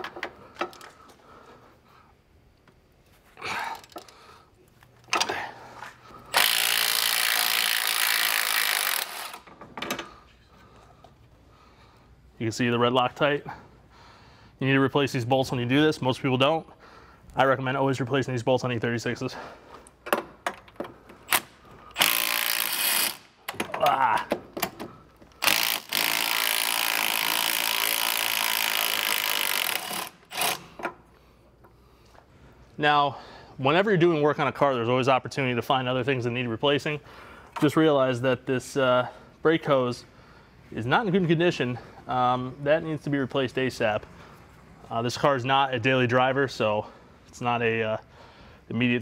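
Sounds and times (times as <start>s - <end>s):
impact wrench running: 6.3s - 9.5s, 21.2s - 23.4s, 25.4s - 30.8s.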